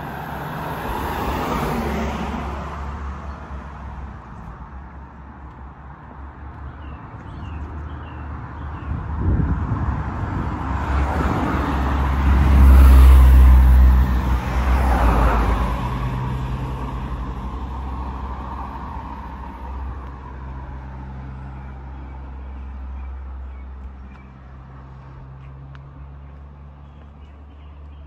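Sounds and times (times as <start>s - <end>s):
vehicle passing by: 0.0s - 4.7s, 7.2s - 28.0s.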